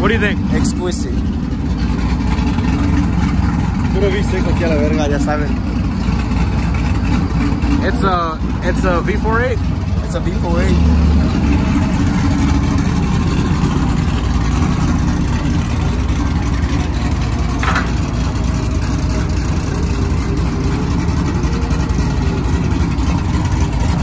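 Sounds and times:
truck engine idling: 0.0s - 24.0s.

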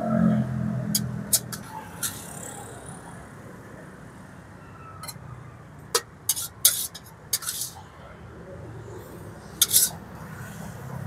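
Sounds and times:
metal ladle clinking on wok: 9.6s - 10.0s.

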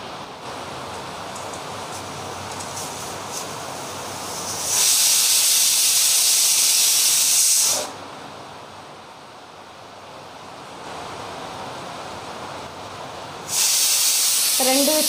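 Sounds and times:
faint steady hiss: 0.0s - 15.0s
pressure cooker whistling: 4.6s - 7.9s, 13.5s - 15.0s.

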